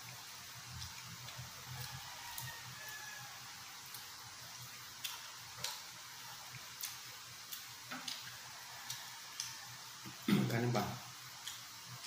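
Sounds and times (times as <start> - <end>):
chewing smacks: 3.8 - 5.9, 6.5 - 10.3, 11.4 - 11.8.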